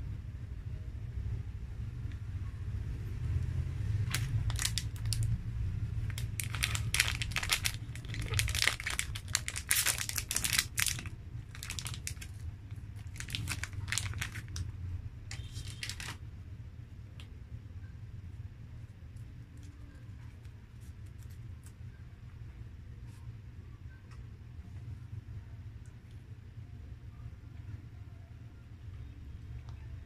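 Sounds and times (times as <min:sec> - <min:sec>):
steady low hum: 0:00.0 - 0:30.0
plastic wrapper crinkling and tearing: 0:04.0 - 0:05.4, 0:06.0 - 0:14.7, 0:15.3 - 0:16.2.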